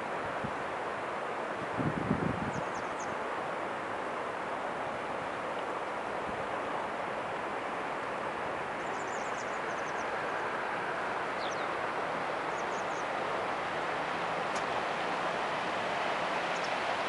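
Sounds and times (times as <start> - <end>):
river rushing over stones: 0.0 - 17.0
small birds chirping: 11.4 - 11.8, 12.5 - 13.1.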